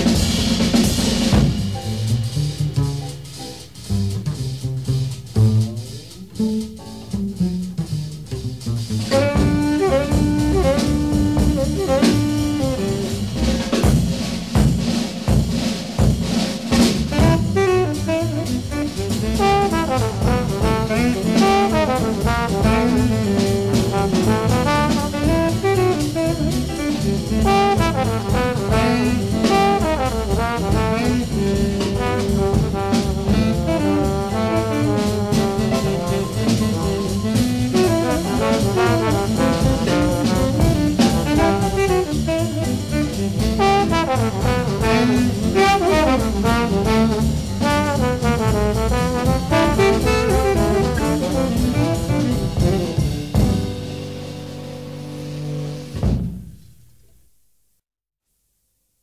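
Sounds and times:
walking double bass: 0:00.0 - 0:56.4
valve trombone: 0:00.0 - 0:56.7
drum kit: 0:00.0 - 0:57.2
saxophone: 0:09.1 - 0:13.8, 0:17.1 - 0:56.0.

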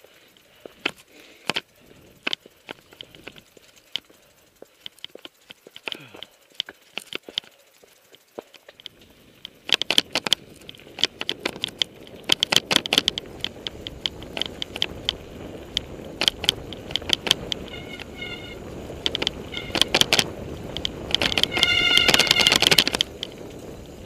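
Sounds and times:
mountain bike chain and frame rattling: 0:00.0 - 0:24.0
wind noise on microphone: 0:08.8 - 0:24.0.

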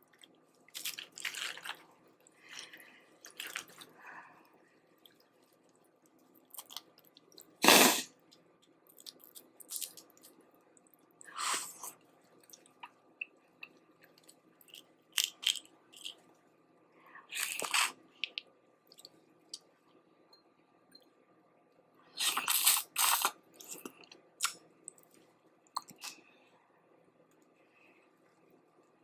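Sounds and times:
chewing: 0:00.0 - 0:04.0.

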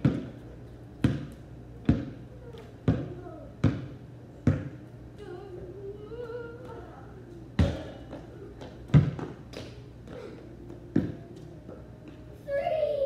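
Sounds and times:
basketball bouncing on concrete: 0:00.0 - 0:00.4, 0:01.0 - 0:04.8, 0:07.6 - 0:09.7
faint child's voice: 0:02.2 - 0:03.6.

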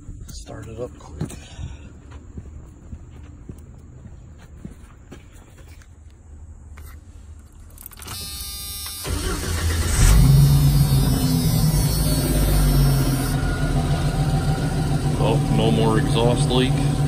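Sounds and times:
starter cranking engine: 0:07.9 - 0:13.4
car engine idling: 0:09.0 - 0:17.0.

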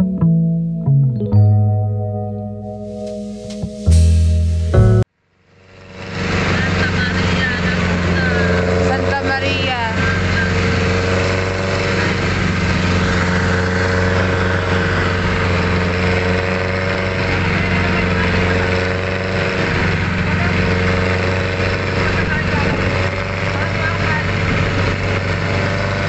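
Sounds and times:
vehicle engine humming: 0:02.5 - 0:26.0
road noise: 0:02.7 - 0:26.0.

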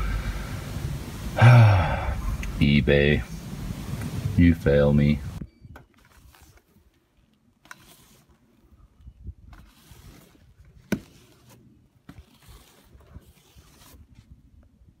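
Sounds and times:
snow swept off windshield: 0:00.0 - 0:04.5.

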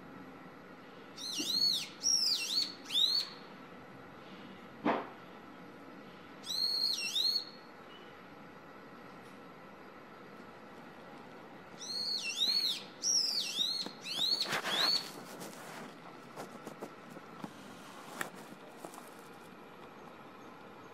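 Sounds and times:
faint hum: 0:00.0 - 0:20.9
bird singing high notes: 0:11.8 - 0:15.1.

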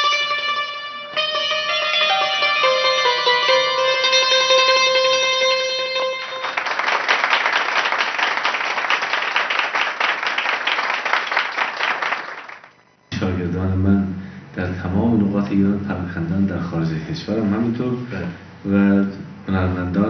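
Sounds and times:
plucked long-necked lute: 0:00.0 - 0:06.5
audience applause: 0:06.2 - 0:12.7.

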